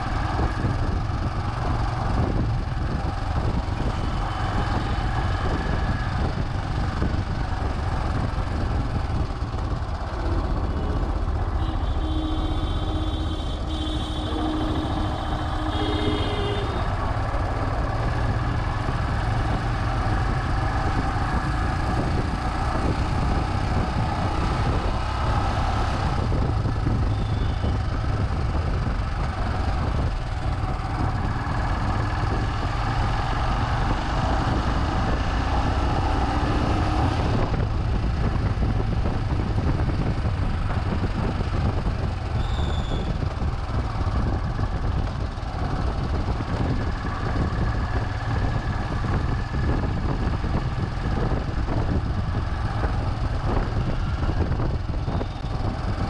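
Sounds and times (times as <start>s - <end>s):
motorcycle engine running: 0.0s - 56.0s
wind and road noise: 0.0s - 56.0s
steady tone: 10.0s - 17.8s.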